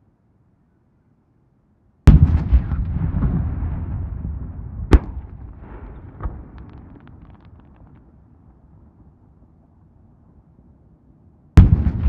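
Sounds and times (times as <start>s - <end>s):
fireworks bangs: 2.1s - 8.0s, 11.6s - 12.0s
fireworks booming: 2.1s - 8.0s, 11.6s - 12.0s
fireworks crackles: 5.0s - 8.2s.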